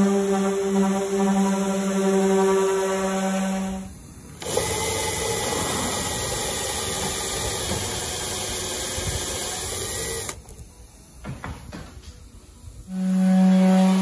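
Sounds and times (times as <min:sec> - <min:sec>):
cordless drill cutting metal panel: 0:04.4 - 0:10.5.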